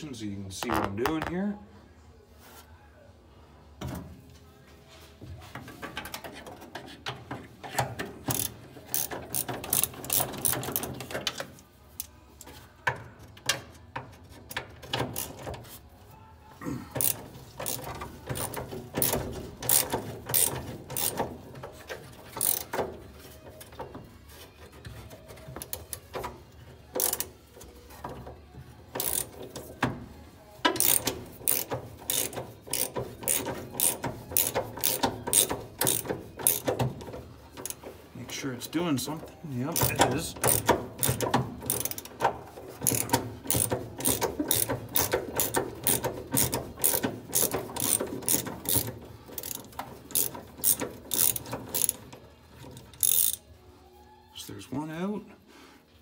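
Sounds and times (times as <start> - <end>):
ratchet wrench clicking: 7.6 - 12.1, 13.5 - 15.6, 16.9 - 23.0, 26.9 - 27.4, 28.9 - 29.8, 30.7 - 37.9, 39.7 - 53.5.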